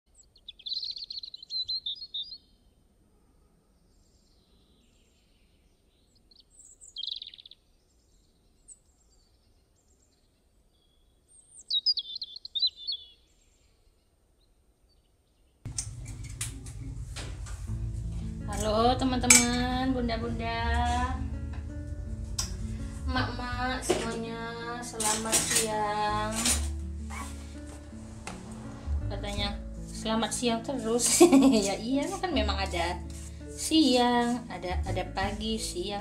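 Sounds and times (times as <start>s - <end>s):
small birds chirping: 0.1s - 2.8s, 3.8s - 15.6s.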